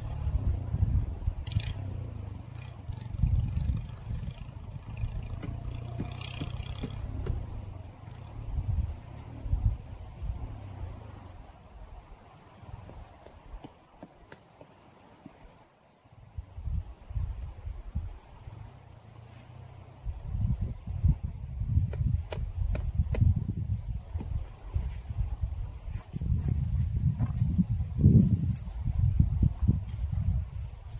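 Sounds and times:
high-pitched insect trill: 0.0 - 11.3
wind buffeting microphone: 0.0 - 13.7, 20.0 - 30.9.

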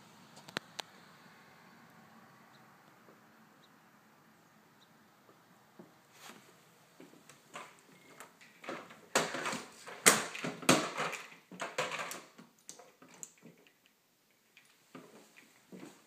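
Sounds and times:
knocks clatters and rustles: 6.2 - 13.8.

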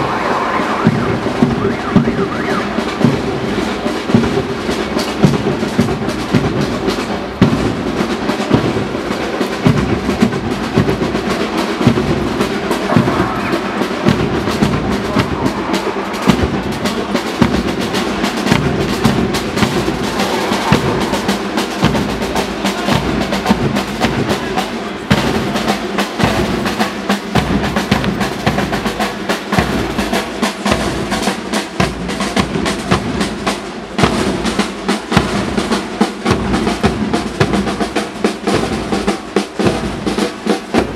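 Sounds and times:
military band playing a march: 0.0 - 40.9
snare and bass drums beating: 0.0 - 40.9
marching boots: 0.8 - 13.4, 14.0 - 33.4.

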